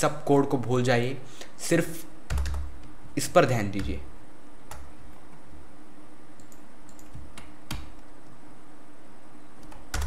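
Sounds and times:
faint steady hum: 0:00.0 - 0:10.0
computer keyboard keystrokes: 0:02.3 - 0:02.7, 0:06.4 - 0:08.1, 0:09.6 - 0:10.0.

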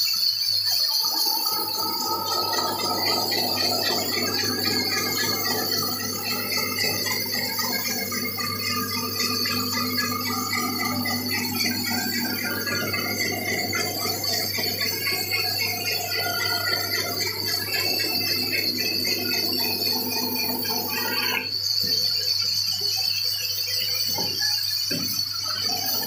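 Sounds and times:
saw blade metallic squeal: 0:00.0 - 0:26.0
band saw motor hum: 0:01.0 - 0:22.0
saw cutting wood: 0:01.4 - 0:21.9.

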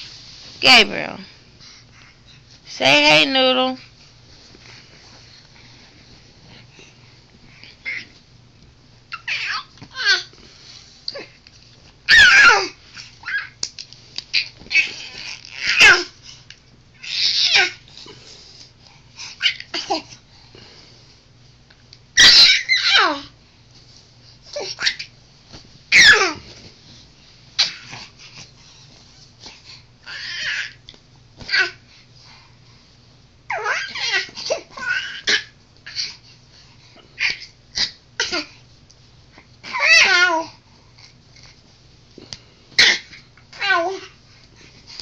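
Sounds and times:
baby squealing and babbling: 0:09.1 - 0:10.3, 0:12.1 - 0:13.6, 0:14.3 - 0:16.1, 0:17.0 - 0:17.8, 0:22.2 - 0:23.2, 0:25.9 - 0:26.4, 0:30.1 - 0:30.8, 0:33.5 - 0:36.0, 0:39.7 - 0:40.5.

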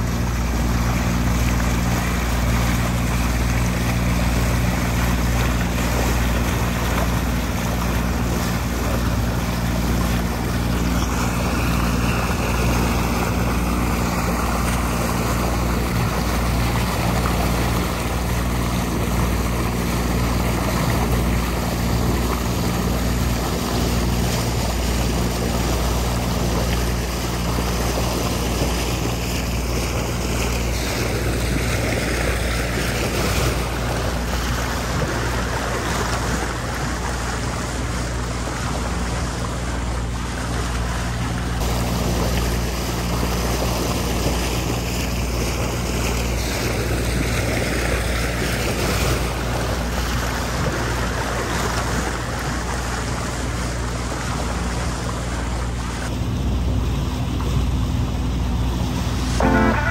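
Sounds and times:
motorboat engine running: 0:00.0 - 0:59.9
rushing water: 0:00.0 - 0:59.9
wind: 0:00.0 - 0:59.9.

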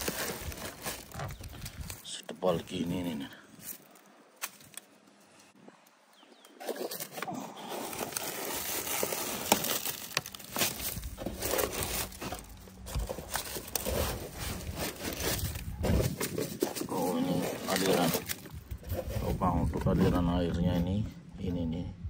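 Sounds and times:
dry leaves crackling: 0:00.0 - 0:05.5, 0:06.6 - 0:18.6.

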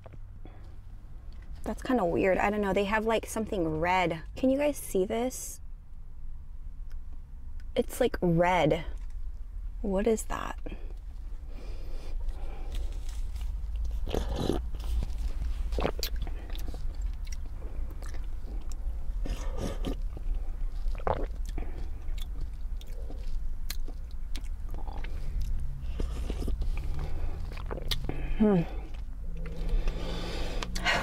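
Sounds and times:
steady low hum: 0:00.0 - 0:31.0
person slurping coffee: 0:14.0 - 0:14.7.

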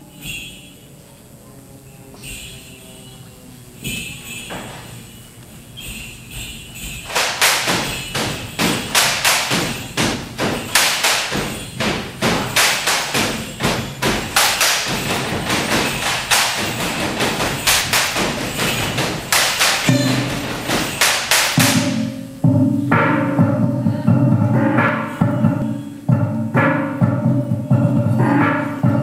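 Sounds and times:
bamboo poles clacking: 0:05.8 - 0:22.2.

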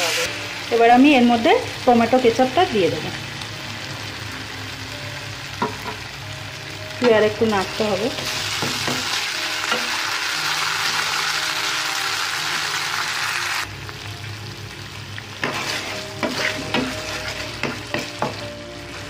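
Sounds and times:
sauce sizzling in hot oil: 0:00.0 - 0:19.0
spatula scraping a pan: 0:15.4 - 0:18.4.

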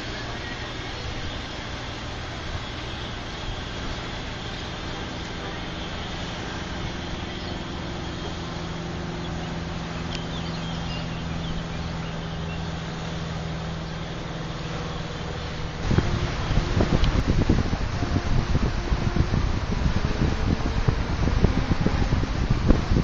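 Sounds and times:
boat engine humming: 0:00.0 - 0:23.0
water hissing: 0:00.0 - 0:23.0
wind buffeting microphone: 0:00.0 - 0:23.0.

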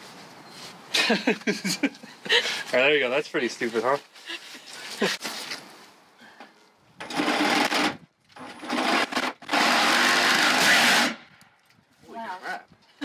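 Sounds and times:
cordless drill running: 0:08.7 - 0:11.2.

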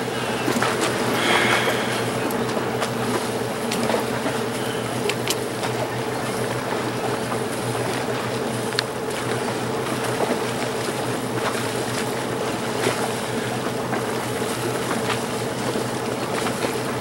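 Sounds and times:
wind and water hiss: 0:00.0 - 0:04.5
steady mechanical hum: 0:00.0 - 0:17.0.

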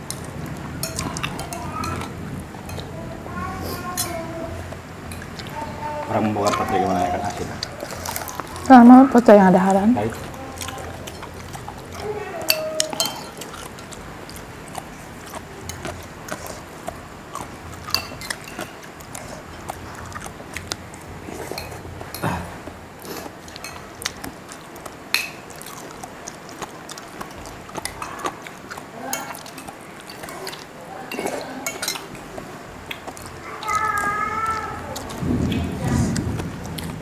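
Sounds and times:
cutlery clinking on plates: 0:00.8 - 0:02.9, 0:12.0 - 0:13.7, 0:17.9 - 0:19.3, 0:25.1 - 0:25.6, 0:29.1 - 0:32.4.

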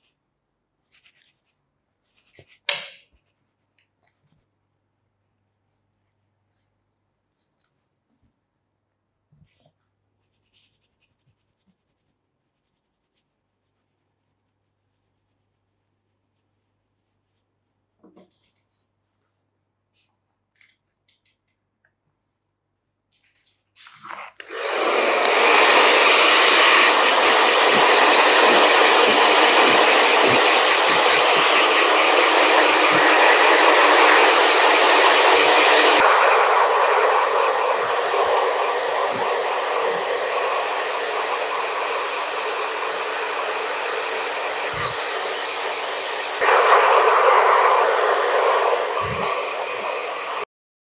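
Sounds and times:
hair dryer blowing: 0:24.4 - 0:50.5.

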